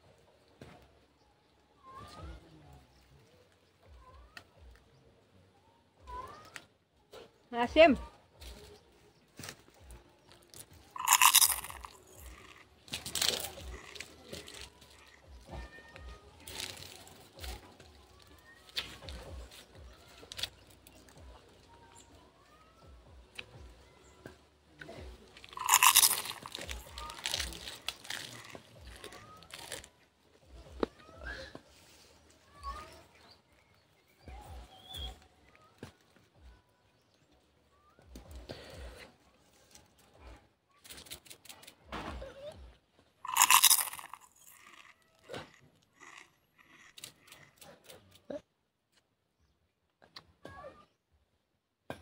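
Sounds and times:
crunchy chewing: 0:09.4 - 0:22.2, 0:24.8 - 0:30.0, 0:43.3 - 0:48.4
biting into raw leaves: 0:10.4 - 0:15.3, 0:25.3 - 0:29.9, 0:43.3 - 0:48.1
wet chewing and lip smacks: 0:25.4 - 0:29.9.

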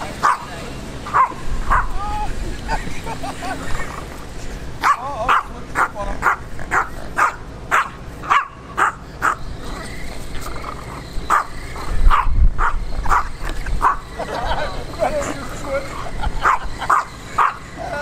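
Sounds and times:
small dog yipping: 0:01.1 - 0:02.2, 0:04.8 - 0:14.0.

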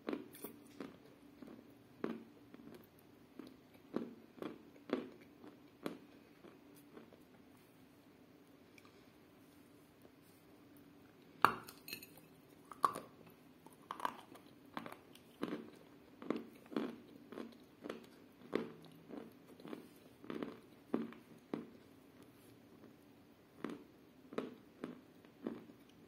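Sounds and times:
crunching chews: 0:00.0 - 0:07.5, 0:12.7 - 0:22.9, 0:23.6 - 0:26.0.

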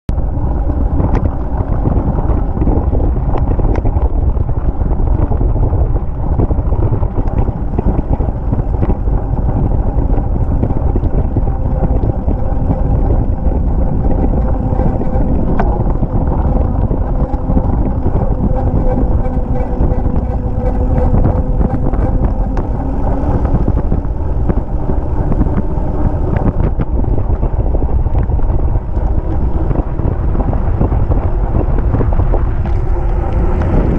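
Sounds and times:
tyre road noise: 0:00.0 - 0:33.9
wind on microphone: 0:00.0 - 0:33.9.

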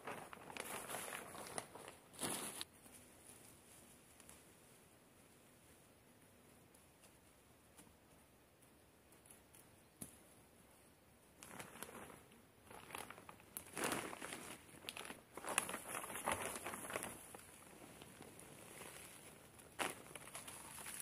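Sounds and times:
plastic bag rustling and crinkling: 0:00.0 - 0:04.8, 0:11.4 - 0:21.0.

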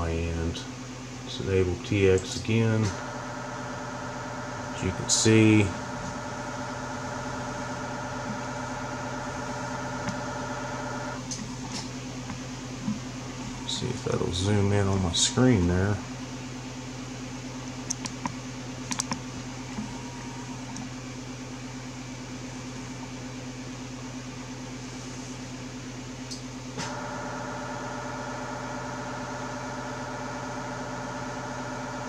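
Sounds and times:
electrical hum and fan: 0:00.0 - 0:32.0
amplifier buzz: 0:01.4 - 0:16.3, 0:26.8 - 0:32.0.

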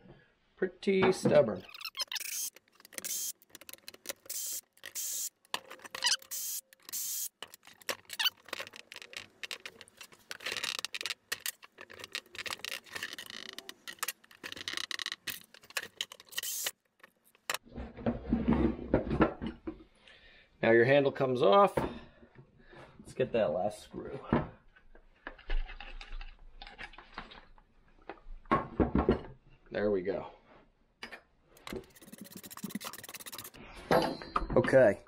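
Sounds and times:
tools clattering on workbench: 0:33.9 - 0:34.9.

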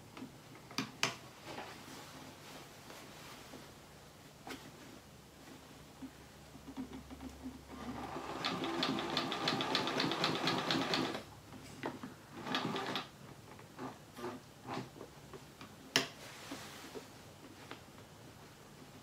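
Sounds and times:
sewing machine stitching: 0:07.7 - 0:11.3, 0:12.3 - 0:13.1.

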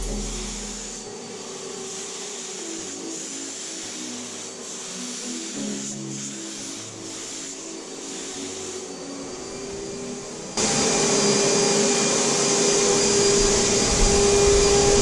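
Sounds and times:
paint sprayer turbine whine: 0:00.0 - 0:15.0.

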